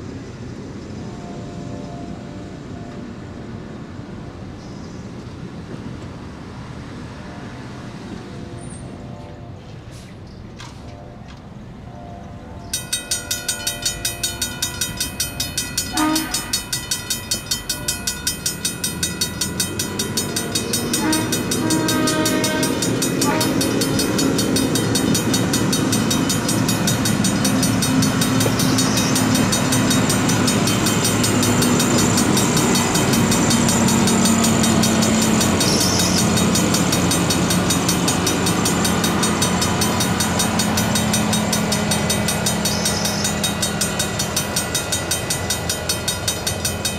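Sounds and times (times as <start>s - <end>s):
railroad crossing bell ringing: 0.0s - 4.6s, 10.8s - 46.9s
heavy engines droning: 0.0s - 46.9s
horn blasts: 15.7s - 17.0s, 20.3s - 27.5s.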